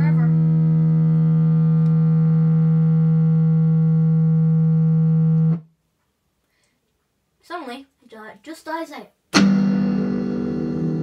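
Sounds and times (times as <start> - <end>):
electric guitar amplifier drone: 0.0 - 5.7, 9.4 - 11.0.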